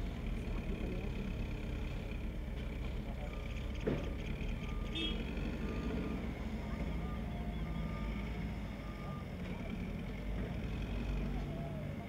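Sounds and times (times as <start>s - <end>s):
heavy vehicle engine running: 0.0s - 12.0s
reversing alarm beeps: 4.6s - 9.3s.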